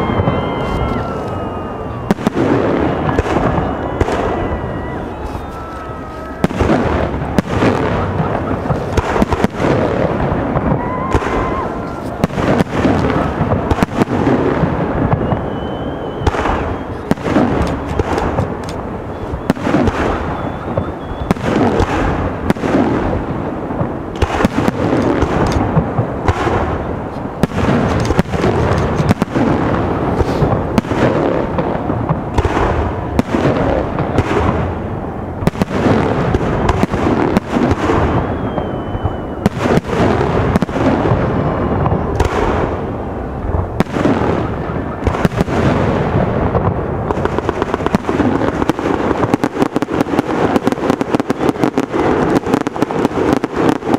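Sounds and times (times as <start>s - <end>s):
fireworks shells bursting: 15.0s - 22.9s, 24.1s - 31.6s.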